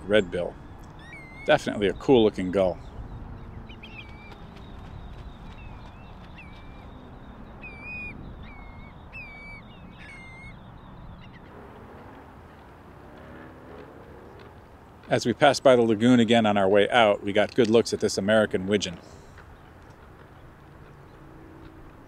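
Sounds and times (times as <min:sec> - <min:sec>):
gulls calling: 0:00.0 - 0:12.3.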